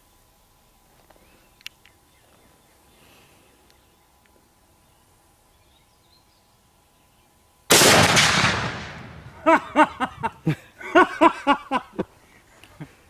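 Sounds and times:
rifle shot with echo: 7.7 - 9.4.

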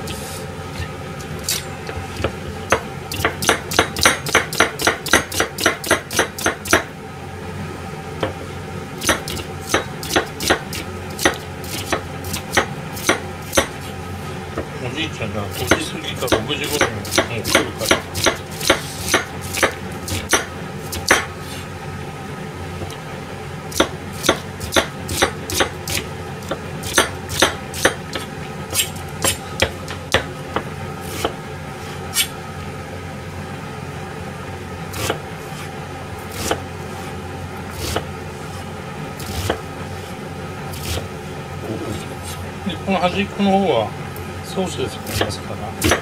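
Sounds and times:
knife chopping onion on board: 1.3 - 6.9, 9.0 - 13.9, 15.6 - 21.6, 23.7 - 31.4, 34.9 - 35.7, 36.3 - 36.6, 37.7 - 39.7, 40.7 - 41.1, 45.0 - 46.0.

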